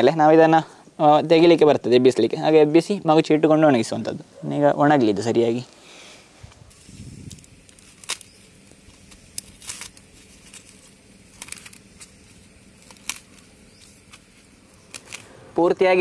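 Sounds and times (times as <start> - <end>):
brittle wafers crackling: 7.2 - 15.4.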